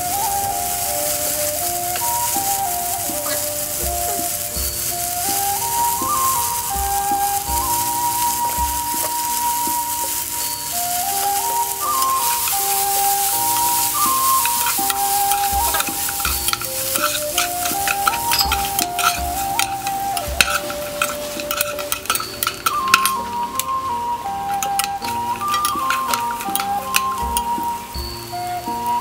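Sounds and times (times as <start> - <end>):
background music: 0.0 - 29.0
chicken sizzling in oil: 0.0 - 29.0
spatula clacking against wok: 4.3 - 23.7.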